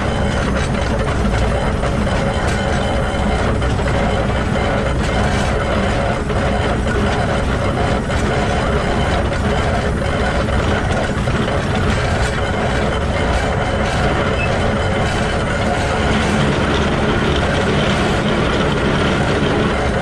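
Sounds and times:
steam locomotive gears and wheels churning: 0:00.0 - 0:20.0.

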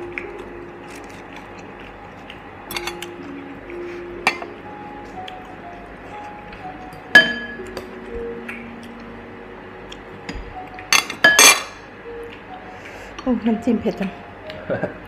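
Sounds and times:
soft background music: 0:00.0 - 0:15.0
metal spoon clinking a glass bowl: 0:02.7 - 0:03.0
tableware clinking: 0:02.7 - 0:03.1, 0:04.2 - 0:04.5, 0:06.9 - 0:07.9, 0:10.3 - 0:11.9.

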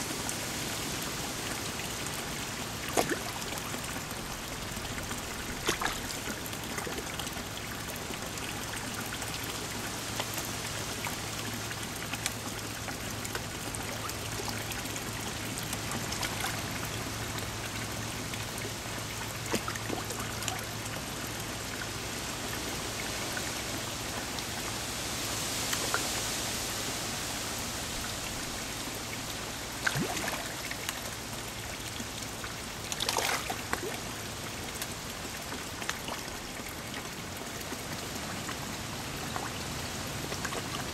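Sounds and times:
water trickling into pond: 0:00.0 - 0:40.9
fish splashing at surface: 0:05.4 - 0:06.4.

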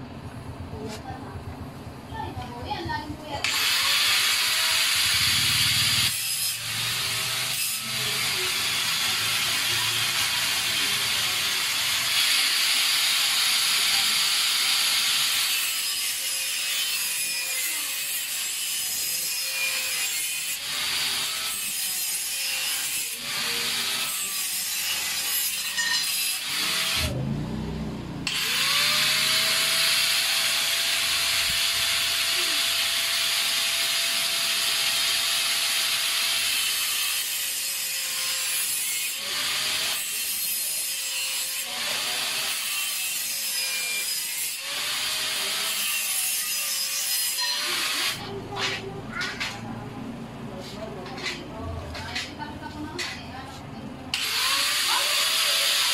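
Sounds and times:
electric power tool running: 0:03.4 - 0:16.4, 0:26.0 - 0:27.4, 0:28.1 - 0:38.5, 0:54.1 - 0:55.9.

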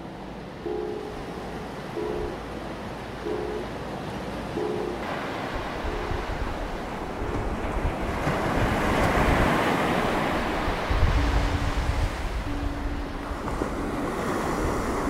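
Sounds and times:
surf breaking on beach: 0:04.6 - 0:15.0
wind buffeting microphone: 0:05.0 - 0:15.0.

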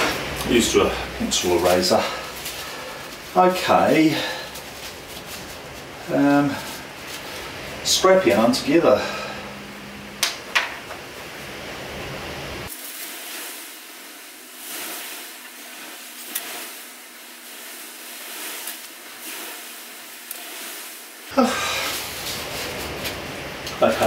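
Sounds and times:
steady hiss: 0:00.0 - 0:24.0
hand rubbing paint on canvas: 0:12.8 - 0:23.2.

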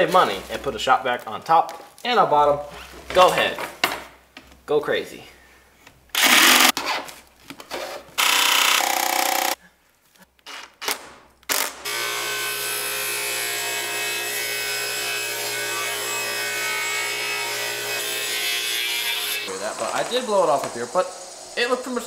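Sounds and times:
table saw ripping wood: 0:06.2 - 0:09.6, 0:10.8 - 0:21.6.

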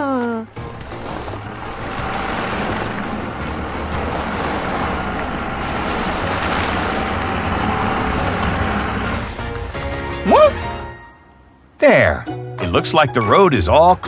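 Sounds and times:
low engine rumble: 0:00.4 - 0:10.8
snow scraping whoosh: 0:00.7 - 0:10.5.

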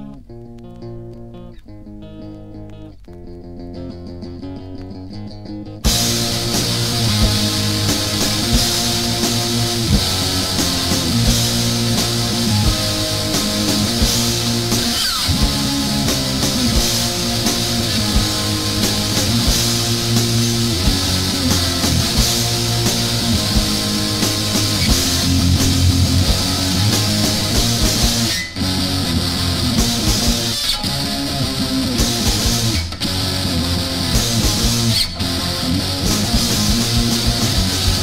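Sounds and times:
fast guitar-driven punk song: 0:02.2 - 0:38.0.

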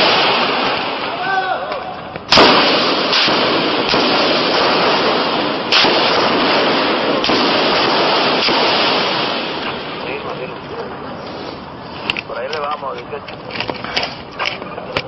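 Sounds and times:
gunshots: 0:00.0 - 0:10.5
faint gunfire cracks: 0:02.3 - 0:10.2.

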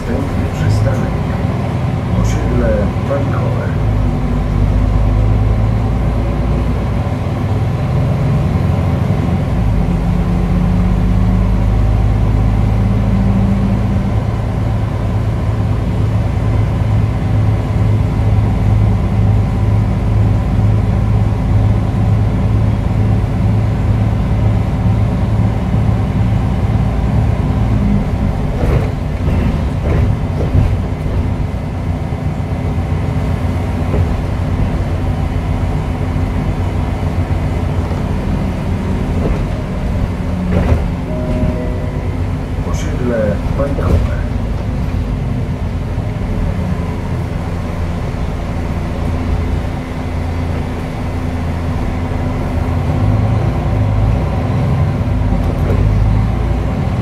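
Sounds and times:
bus diesel engine running: 0:00.0 - 0:57.0
short knocks and rattles: 0:28.5 - 0:31.5.

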